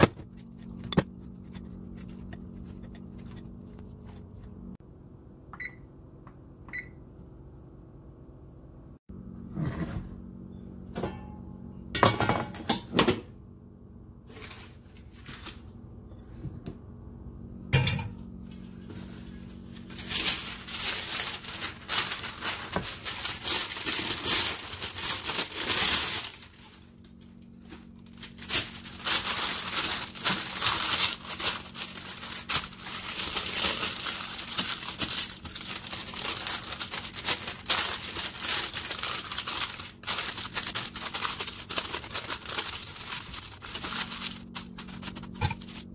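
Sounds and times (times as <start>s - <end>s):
parchment paper crinkling: 0.0s - 4.8s, 18.8s - 45.9s.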